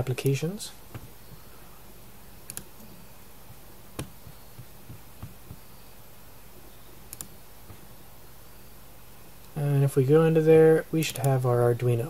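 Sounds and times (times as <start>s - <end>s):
computer mouse clicking: 2.5s - 2.8s, 4.0s - 5.6s, 7.1s - 7.4s.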